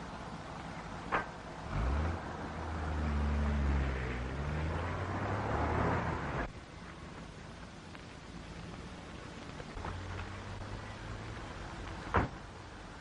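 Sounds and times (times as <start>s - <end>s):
car engine revving: 1.6s - 6.5s.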